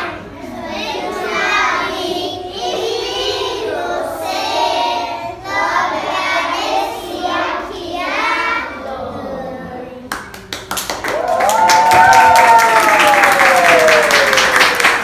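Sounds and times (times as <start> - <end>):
children singing in unison: 0.0 - 10.0.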